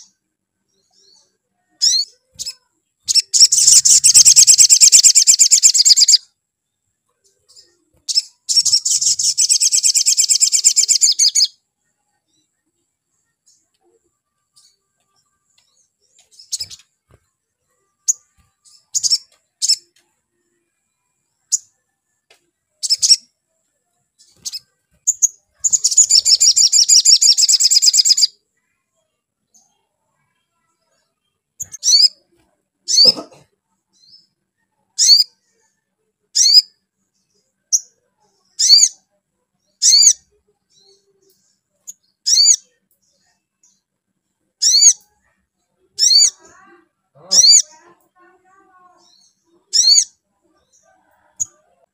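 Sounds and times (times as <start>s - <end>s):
bird chirping calls: 0.0s - 6.4s, 7.1s - 21.8s, 22.8s - 23.5s, 24.2s - 28.8s, 29.5s - 35.7s, 36.4s - 36.8s, 37.6s - 39.1s, 39.7s - 43.9s, 44.6s - 51.9s
bird buzzy trill: 1.8s - 6.2s, 8.1s - 11.5s.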